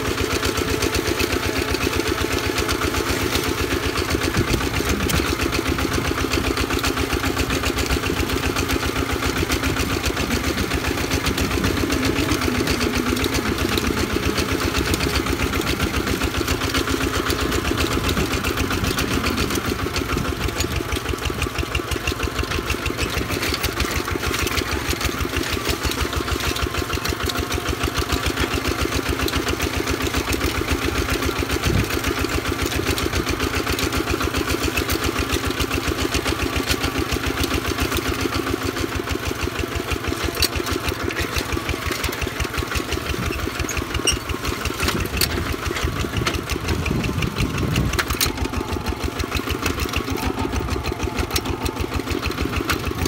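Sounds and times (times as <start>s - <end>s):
diesel engine chugging: 0.0s - 53.0s.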